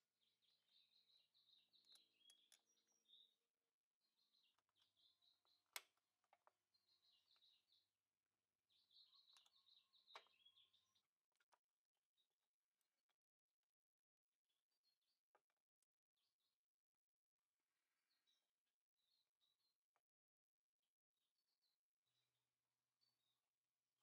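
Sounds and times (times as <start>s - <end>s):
faint bird chirps: 0.0s - 12.4s.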